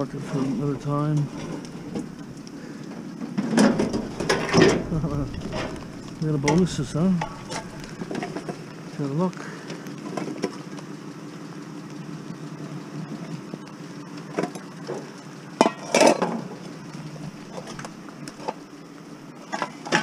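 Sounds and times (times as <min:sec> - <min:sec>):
metal clattering: 0:00.2 - 0:02.4, 0:03.4 - 0:08.5.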